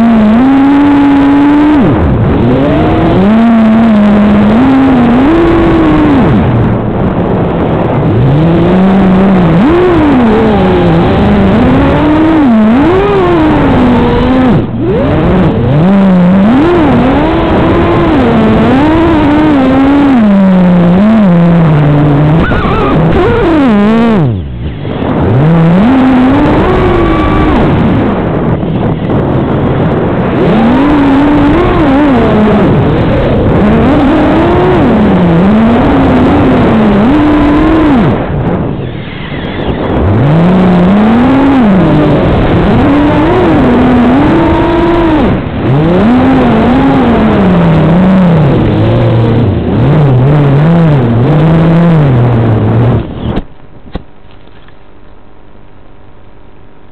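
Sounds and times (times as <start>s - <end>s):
drone motors whining: 0.0s - 53.4s.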